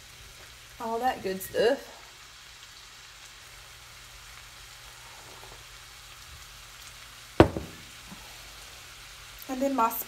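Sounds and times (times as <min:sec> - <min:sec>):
sausage sizzling in skillet: 0:00.0 - 0:10.0
mug knocking on countertop: 0:07.4 - 0:07.9.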